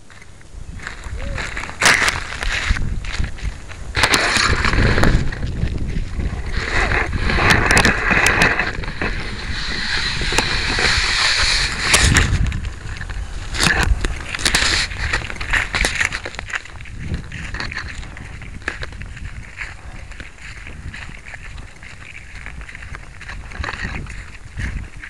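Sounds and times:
camera handling rustling and scraping: 0:04.0 - 0:19.0.

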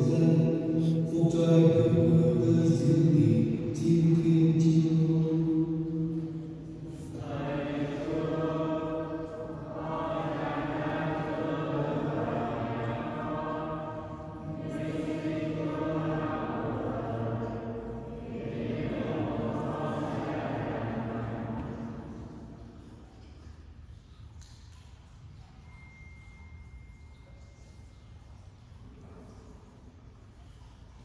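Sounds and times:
voices singing liturgical chant: 0:00.0 - 0:22.6.

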